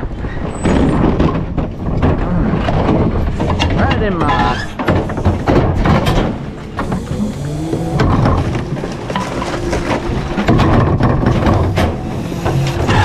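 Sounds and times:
garbage truck engine running: 0:00.0 - 0:13.0
metallic clanks and knocks: 0:00.5 - 0:13.0
steady whine: 0:03.6 - 0:13.0.

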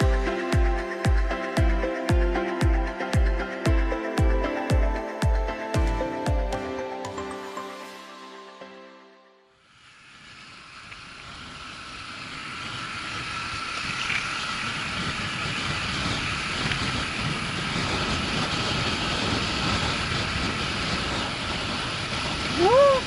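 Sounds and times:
wind rushing over camera: 0:10.2 - 0:23.0
motorcycle engine running: 0:10.3 - 0:22.6.

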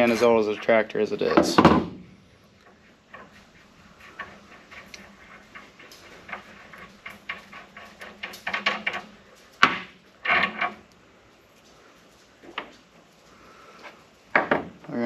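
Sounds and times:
small metal clicks and scrapes: 0:02.6 - 0:14.1
knocks: 0:14.3 - 0:14.8.

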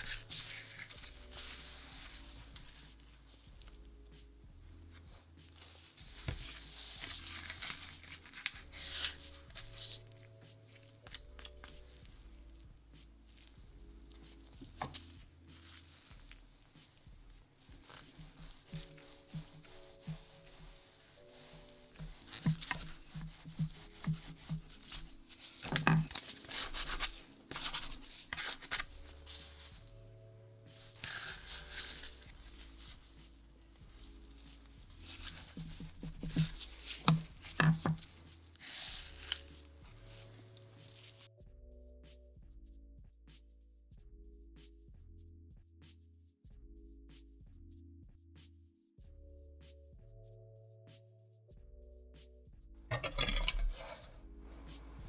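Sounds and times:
plastic gloves rustling: 0:00.0 - 0:04.1, 0:04.8 - 0:41.4
rubbing and scratching dough: 0:00.0 - 0:41.4.

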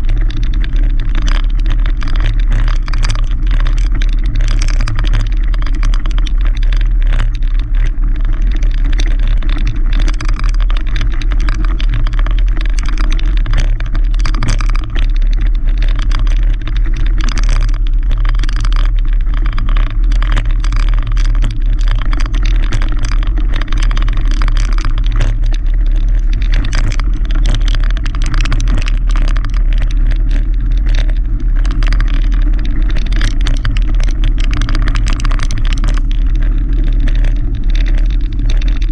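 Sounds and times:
bike rattling: 0:00.0 - 0:38.9
bike rumbling over gravel: 0:00.0 - 0:38.9
tyres crackling on loose stones: 0:00.0 - 0:38.9.

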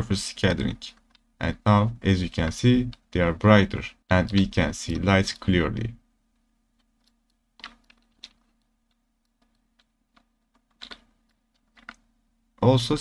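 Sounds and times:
faint low hum: 0:00.0 - 0:13.0
mouse and keyboard clicks: 0:04.2 - 0:05.4, 0:06.8 - 0:12.1.

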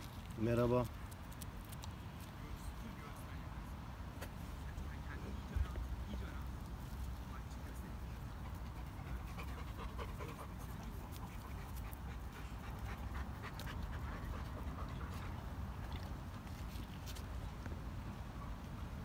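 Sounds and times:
small clicks and scuffs: 0:00.0 - 0:02.8, 0:10.6 - 0:17.8
dog panting: 0:07.8 - 0:16.2.

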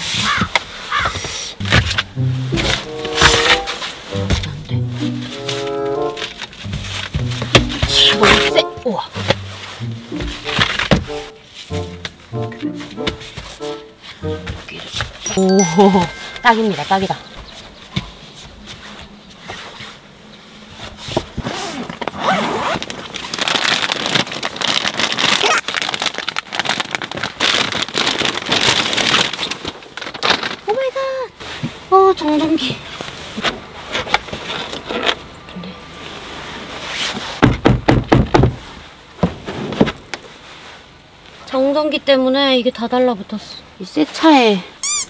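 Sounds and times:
rustling and scraping materials: 0:00.0 - 0:15.3, 0:16.4 - 0:30.7, 0:31.4 - 0:35.3, 0:36.0 - 0:37.4, 0:38.5 - 0:41.0
squeaky rubbing: 0:01.6 - 0:04.2.

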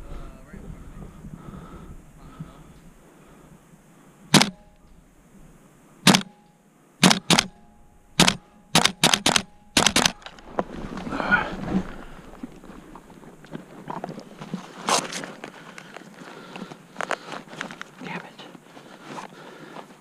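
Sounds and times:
airsoft gun shots: 0:04.3 - 0:04.7, 0:06.0 - 0:06.4, 0:07.0 - 0:10.3
rustling movement: 0:08.3 - 0:20.0.

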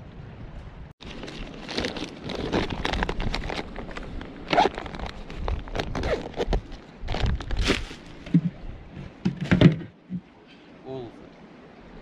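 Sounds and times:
bags rustling and crinkling: 0:01.0 - 0:08.2.

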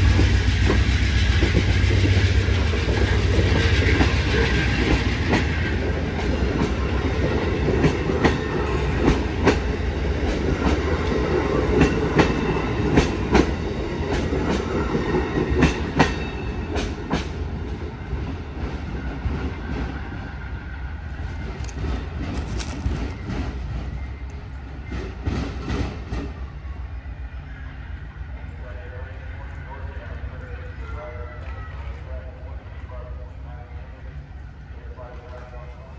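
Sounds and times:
passenger train rumbling past: 0:00.0 - 0:35.9
wheels clicking over rail joints: 0:21.5 - 0:24.6.

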